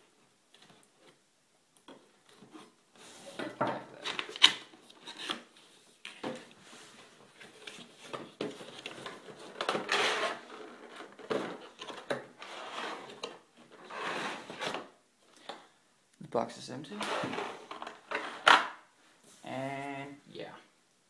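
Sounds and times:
cardboard and plastic rustling: 1.9 - 15.0.

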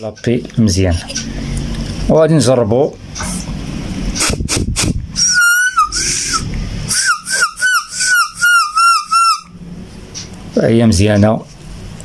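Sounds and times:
air whistling past reed valve: 4.2 - 9.6.

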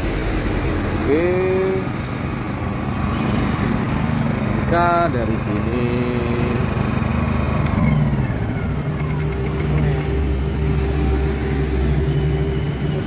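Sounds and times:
generator engine running: 0.0 - 13.0.

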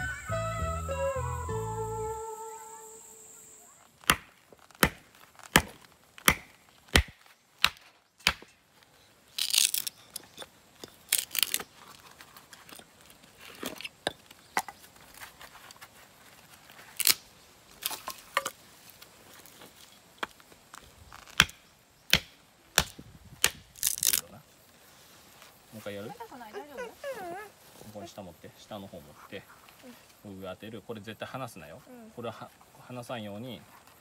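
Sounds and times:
hatchet chopping wood: 4.0 - 8.6, 21.3 - 24.0
wood cracking and tearing: 9.3 - 10.3, 10.9 - 13.5, 16.8 - 17.2, 22.8 - 24.3.

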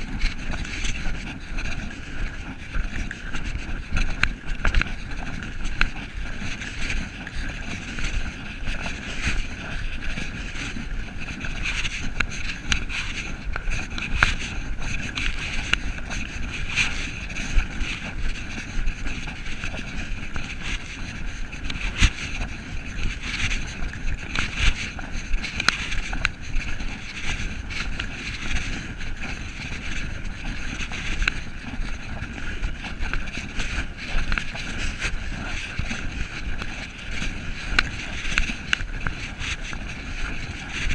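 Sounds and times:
cloth rubbing on microphone: 0.0 - 40.9
wind on microphone: 0.0 - 40.9.

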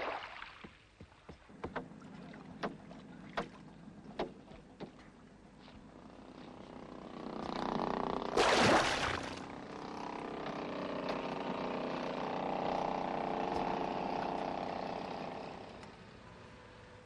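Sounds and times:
chainsaw running: 9.2 - 16.0.

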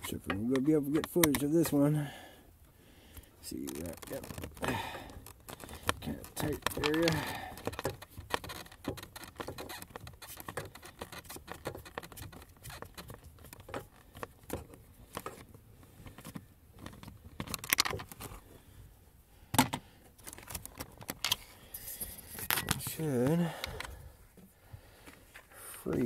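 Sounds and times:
hands scratching plastic and foam: 0.0 - 1.8, 3.4 - 18.4, 20.2 - 23.9.

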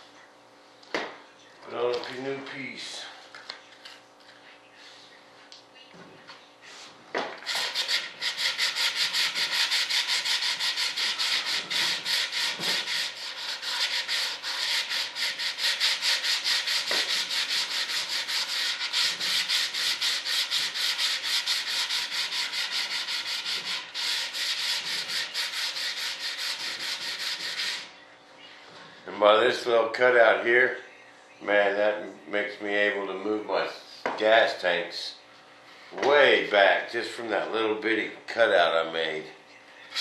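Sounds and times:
sandpaper scraping: 6.7 - 27.9.

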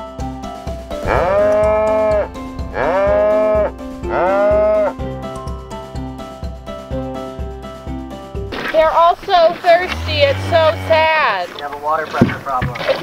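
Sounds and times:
cow mooing: 1.0 - 4.9, 9.7 - 11.5.

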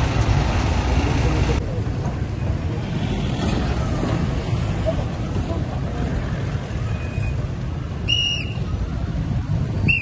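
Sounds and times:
high whistle blast: 8.0 - 8.7.

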